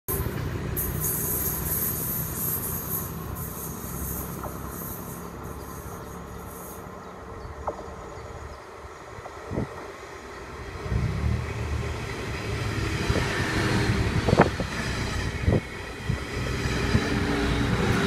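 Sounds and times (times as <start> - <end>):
high-pitched wheel hiss: 0.1 - 7.1
train rumbling on rails: 0.1 - 18.0.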